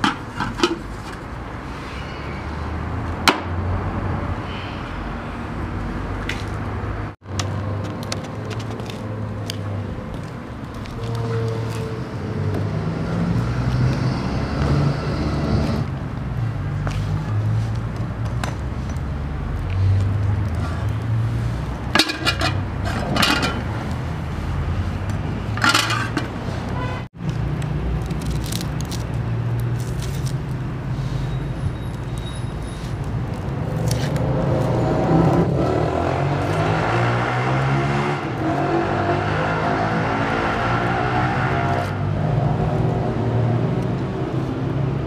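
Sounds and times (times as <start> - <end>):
metal pot clinks and scrapes: 0.0 - 0.9, 21.9 - 23.7, 25.6 - 26.4.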